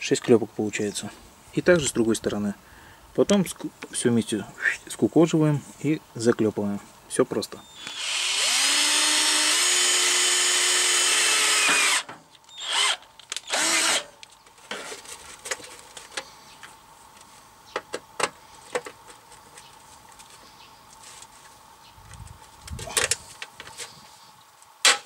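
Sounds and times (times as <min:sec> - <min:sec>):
cordless drill boring through steel: 0:07.8 - 0:14.1.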